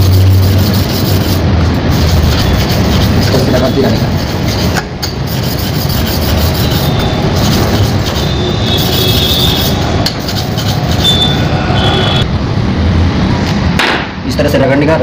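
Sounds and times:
blade scraping on sharpening stone: 0:02.0 - 0:11.4.

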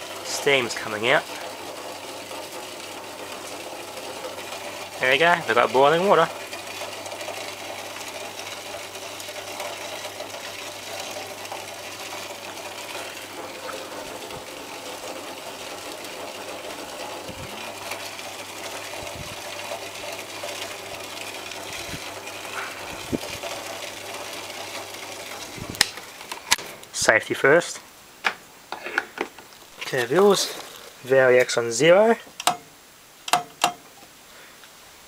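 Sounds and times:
vacuum cleaner motor running: 0:00.0 - 0:26.6
low electrical hum: 0:00.0 - 0:35.0
faint crackles: 0:28.7 - 0:31.7.

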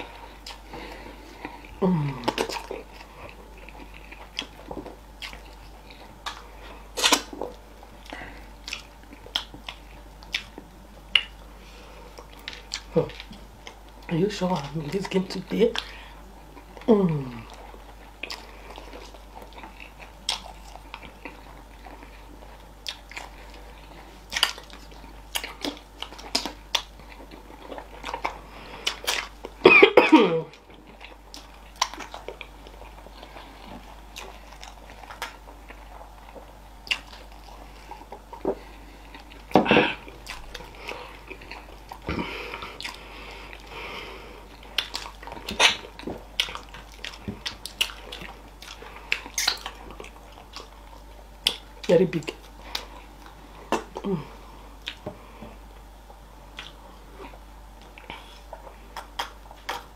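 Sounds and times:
wet chewing and lip smacks: 0:00.1 - 0:11.5, 0:12.1 - 0:29.6, 0:30.5 - 0:43.7, 0:44.4 - 0:54.1, 0:54.8 - 0:55.1, 0:55.7 - 0:59.9
person coughing: 0:29.6 - 0:30.5, 0:39.6 - 0:40.0.

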